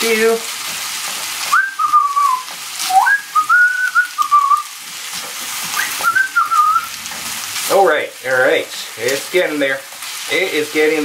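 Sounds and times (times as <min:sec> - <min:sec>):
chicken sizzling in a pan: 0:00.0 - 0:11.0
person whistling a tune: 0:01.5 - 0:04.7, 0:05.7 - 0:06.9.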